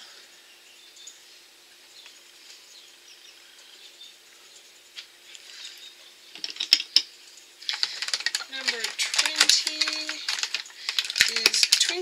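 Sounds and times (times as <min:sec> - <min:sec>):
faint bird chirps: 0:00.0 - 0:04.8, 0:05.4 - 0:06.4
faint steady hum: 0:00.0 - 0:12.0
glass bottles clicking: 0:06.4 - 0:07.1, 0:07.7 - 0:12.0.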